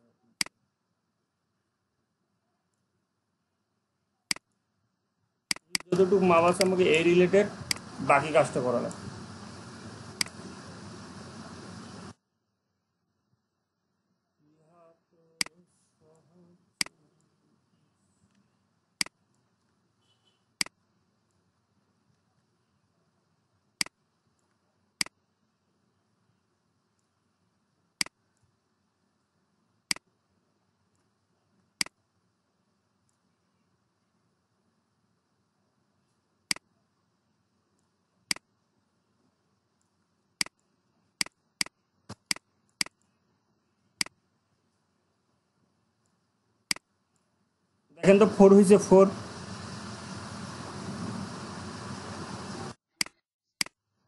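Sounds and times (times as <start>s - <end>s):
faint background hiss: 0.0s - 52.8s
computer mouse clicks: 4.3s - 4.6s, 5.5s - 6.0s, 10.2s - 10.4s, 29.9s - 30.1s, 31.8s - 32.0s, 37.8s - 38.5s, 39.8s - 43.1s, 46.0s - 47.3s
mouse button clicking: 5.5s - 6.0s
faint hiss: 5.7s - 12.2s, 41.9s - 52.8s.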